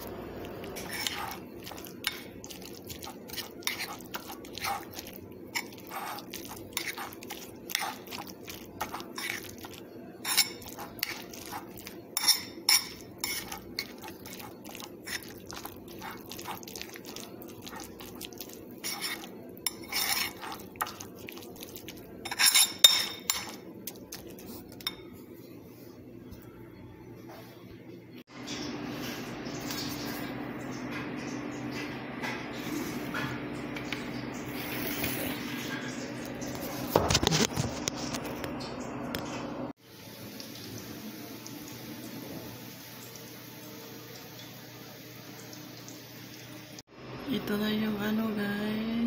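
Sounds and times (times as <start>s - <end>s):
cutlery clinking against ceramic bowl: 0.8s - 25.2s.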